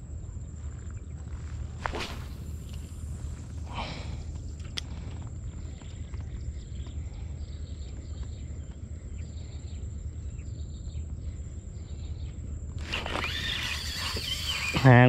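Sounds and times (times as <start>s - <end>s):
steady low rumble: 0.0s - 12.8s
birds chirping: 0.0s - 15.0s
insects chirping: 0.0s - 15.0s
thin high whine: 1.5s - 4.6s, 12.8s - 15.0s.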